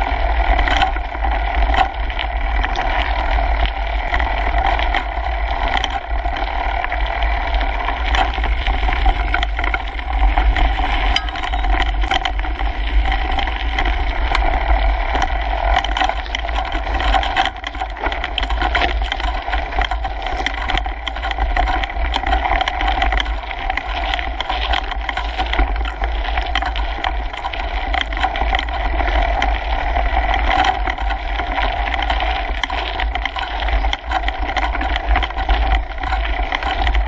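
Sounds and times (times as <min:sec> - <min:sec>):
bike rattling and clicking: 0:00.0 - 0:37.0
tyres rolling on gravel: 0:02.5 - 0:37.0.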